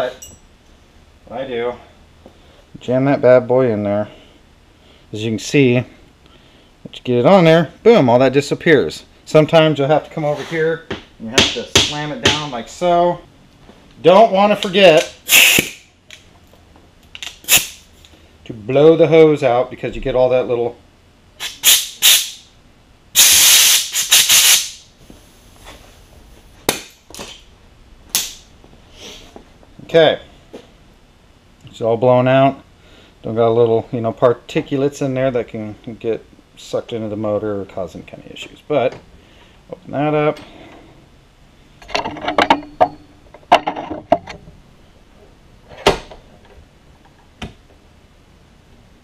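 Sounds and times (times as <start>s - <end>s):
compressed air blow gun hissing: 15.3s - 15.8s, 23.2s - 24.8s.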